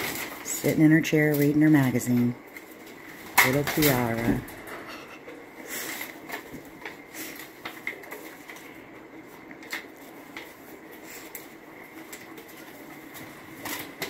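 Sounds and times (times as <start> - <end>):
magazine paper rustling: 5.7 - 14.0.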